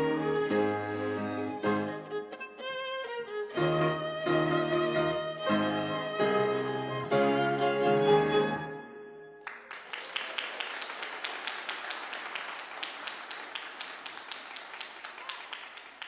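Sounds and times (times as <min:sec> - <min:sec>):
string ensemble chord: 0:00.0 - 0:02.7, 0:03.3 - 0:09.3
audience applause: 0:09.4 - 0:16.0.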